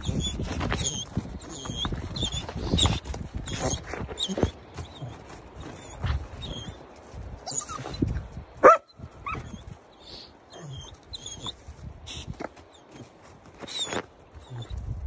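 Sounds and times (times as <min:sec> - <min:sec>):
puppy whining: 0:00.0 - 0:06.8, 0:07.4 - 0:08.2, 0:10.5 - 0:11.6, 0:13.6 - 0:14.8
puppy yipping: 0:07.5 - 0:09.6.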